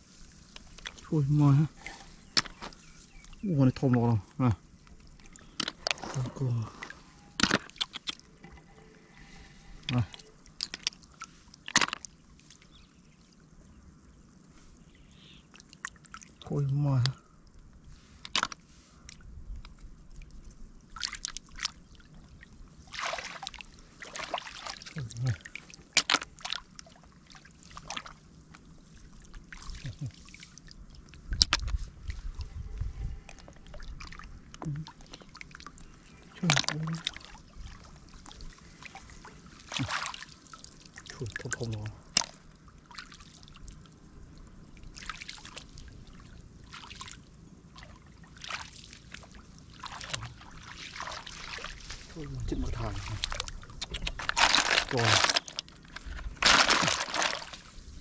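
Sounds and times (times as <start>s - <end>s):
splashing in muddy water: 0.0s - 12.7s, 20.9s - 44.0s, 44.8s - 58.0s
hands splashing in muddy water: 22.9s - 26.8s, 38.7s - 40.6s, 47.8s - 57.8s.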